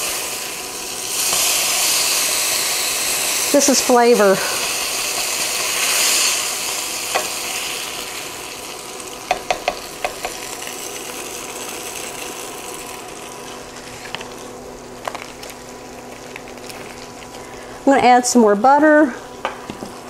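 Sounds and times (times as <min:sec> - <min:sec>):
steaks sizzling in a pan: 0:00.0 - 0:17.6
wooden spatula knocking on pan: 0:09.3 - 0:10.4.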